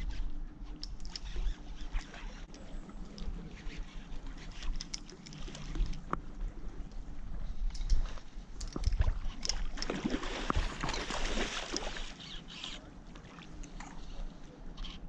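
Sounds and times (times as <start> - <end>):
water splashing from thrashing fish: 9.0 - 12.2.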